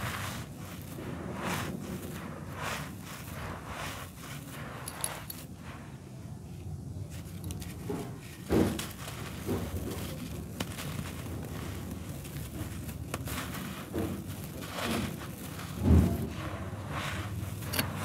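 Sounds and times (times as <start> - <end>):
hands crumbling dry soil: 0.0 - 18.0
thump: 7.9 - 9.7, 15.8 - 16.4.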